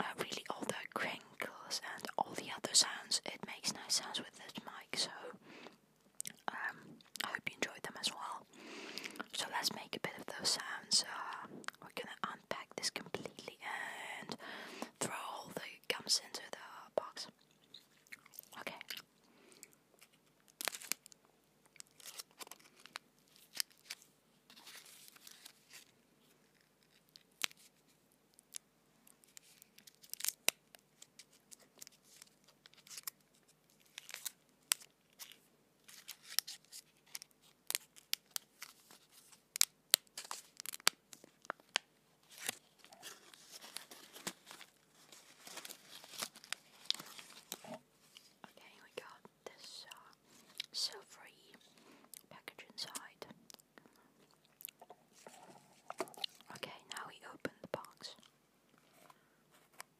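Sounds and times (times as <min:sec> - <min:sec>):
gum wrapper crinkling and crackling: 0:17.1 - 0:48.4, 0:49.0 - 0:50.9, 0:52.0 - 0:59.1.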